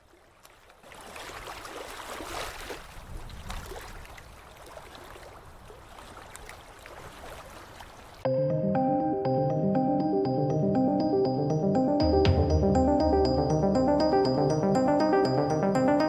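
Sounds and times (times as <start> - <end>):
gentle background music: 8.3 - 16.0.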